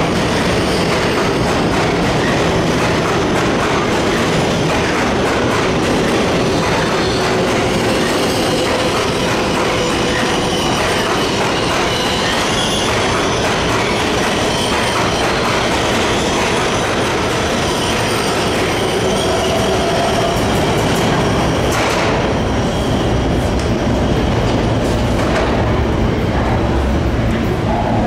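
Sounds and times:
subway train wheels on rails: 0.0s - 28.0s.

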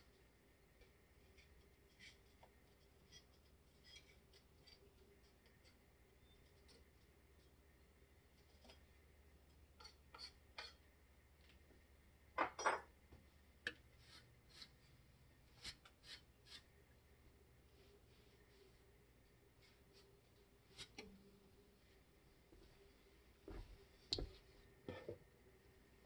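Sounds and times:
faint clicks and scrapes: 0.0s - 11.8s, 17.7s - 25.3s
low steady hum: 0.0s - 26.0s.

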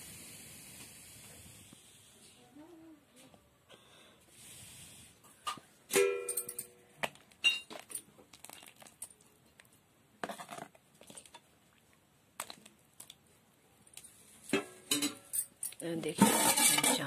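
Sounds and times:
metal cookware clinking: 5.9s - 6.8s, 14.5s - 17.0s.

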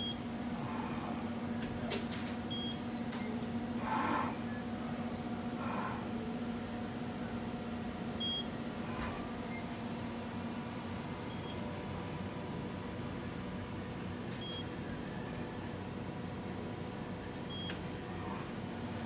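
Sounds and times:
steady low machine hum: 0.0s - 19.0s.

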